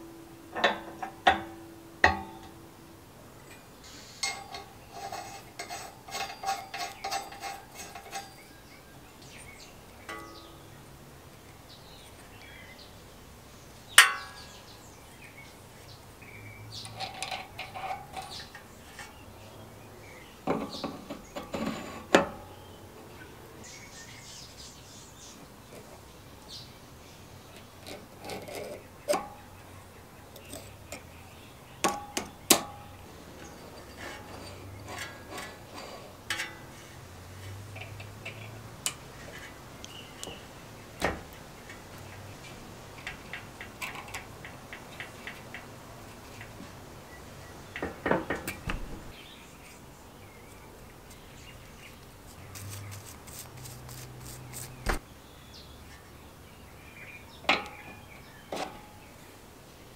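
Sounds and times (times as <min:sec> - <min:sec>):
metal tools clicking and clattering: 0:03.4 - 0:08.6, 0:14.0 - 0:14.6, 0:16.7 - 0:19.2, 0:31.8 - 0:36.8, 0:41.7 - 0:45.7.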